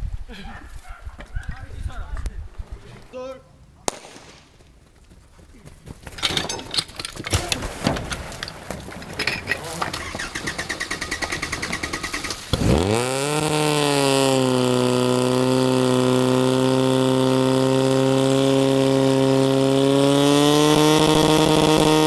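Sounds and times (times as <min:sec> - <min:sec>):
pump engine revving: 0:09.2 - 0:22.0.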